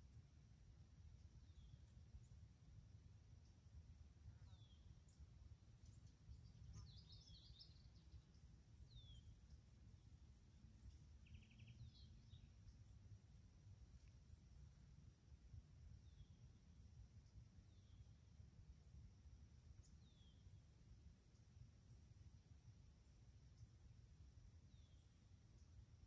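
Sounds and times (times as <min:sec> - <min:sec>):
bird chirping: 0:01.2 - 0:02.4, 0:03.2 - 0:13.3, 0:15.9 - 0:18.3, 0:19.6 - 0:21.6, 0:24.5 - 0:26.0.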